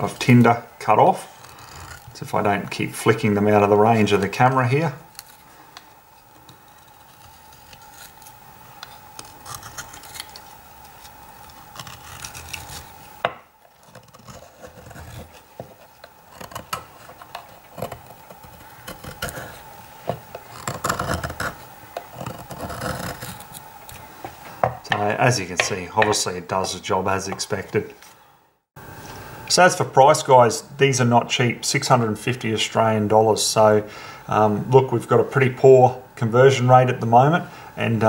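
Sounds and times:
knife scraping wood: 1.2s - 2.2s, 5.1s - 24.1s.

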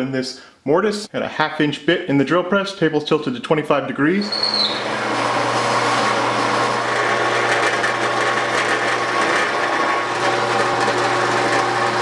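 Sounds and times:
drill bit cutting wood: 4.2s - 12.0s
drill press motor hum: 4.2s - 12.0s.

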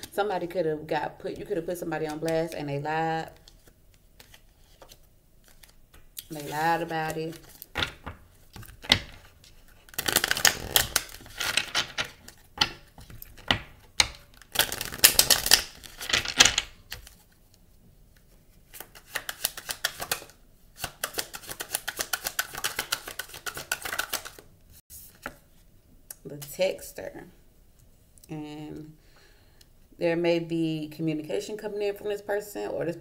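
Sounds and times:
cards being shuffled: 3.3s - 17.4s, 18.7s - 25.4s.

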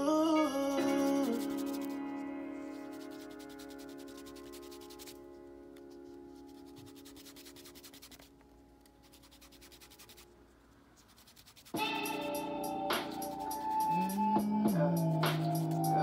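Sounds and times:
background music: 0.0s - 10.2s, 11.7s - 16.0s
pencil scratching on paper: 1.2s - 5.2s, 6.3s - 8.3s, 9.0s - 10.3s, 11.0s - 12.2s.

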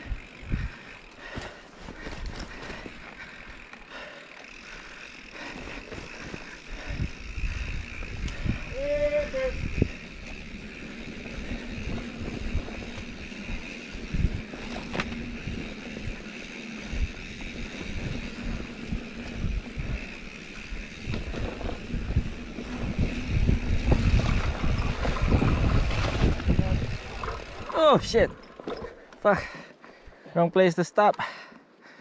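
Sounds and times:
wind buffeting microphone: 0.0s - 0.9s, 6.0s - 28.4s
bike tyres rumbling on dirt: 0.0s - 29.6s.

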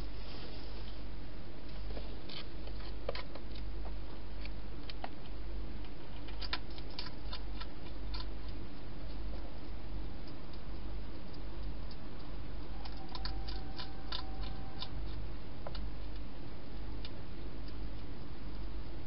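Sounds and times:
steady low hum: 0.0s - 19.0s
hedgehog crunching food: 4.4s - 18.2s.

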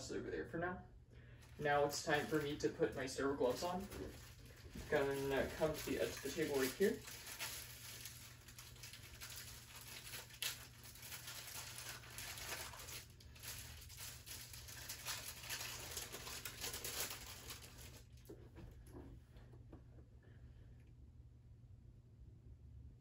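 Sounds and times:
paper wrapper rustling and crinkling: 1.4s - 18.4s.

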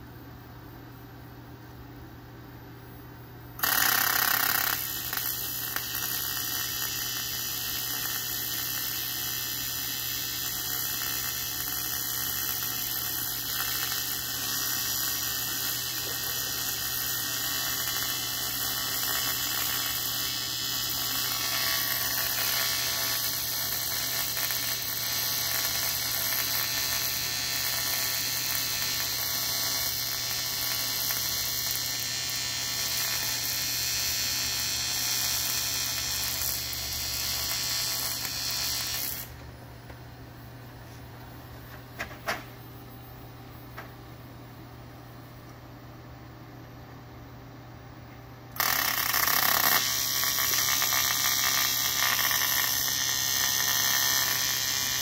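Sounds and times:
welding arc buzzing: 3.6s - 39.6s, 48.5s - 55.0s.

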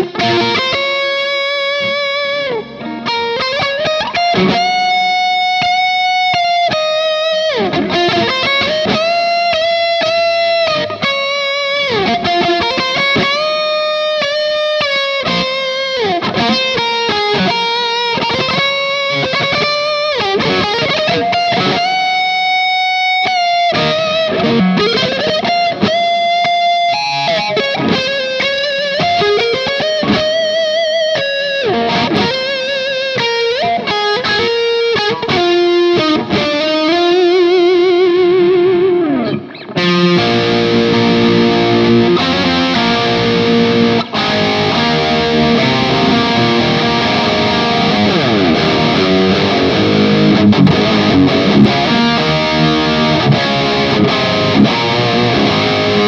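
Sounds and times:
distorted electric guitar solo: 0.0s - 56.0s.

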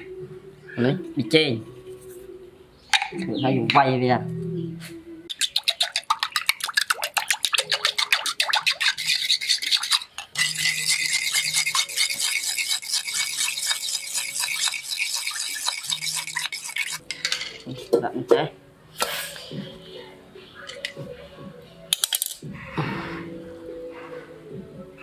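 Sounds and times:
spoon beating eggs in a bowl: 5.3s - 17.4s.

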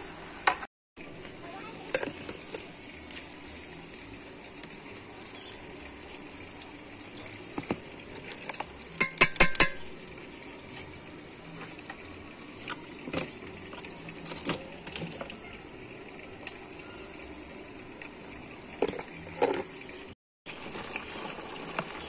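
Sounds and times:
metal cookware clinking and knocking: 9.0s - 9.9s.

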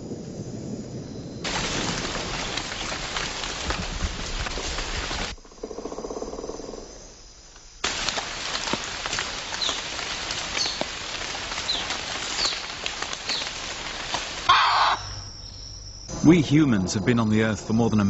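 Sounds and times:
buzzing insect call: 0.0s - 18.0s
rain on foliage: 1.4s - 5.4s, 7.8s - 15.2s
high falling bird calls: 7.9s - 16.3s
low rumble: 15.3s - 18.0s.

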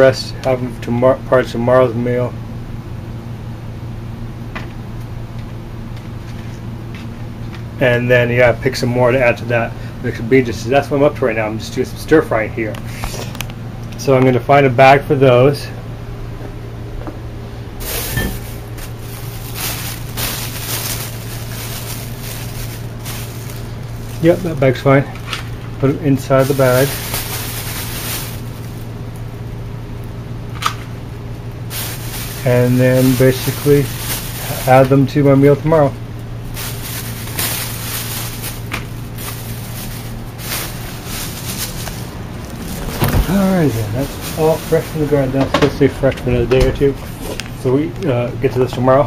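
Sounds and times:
steady low hum: 0.0s - 49.0s
rustling while searching a bag: 17.8s - 24.8s, 26.2s - 28.9s, 31.7s - 35.0s, 36.5s - 45.4s
footsteps: 39.3s - 45.8s
camera jostled against clothing: 42.5s - 43.4s.

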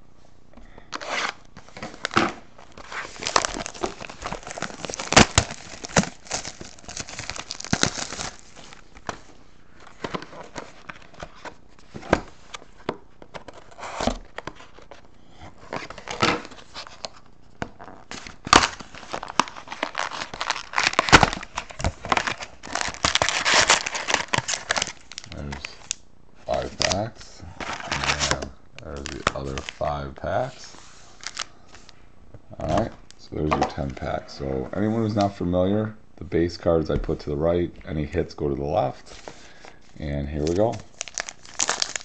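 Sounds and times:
foil packs rustling: 1.0s - 9.2s, 18.1s - 25.9s, 26.5s - 29.8s, 30.4s - 31.8s, 39.0s - 42.0s
plastic wrapping crinkling and tearing: 1.0s - 9.2s, 17.8s - 29.8s, 31.2s - 32.0s, 40.3s - 42.0s.

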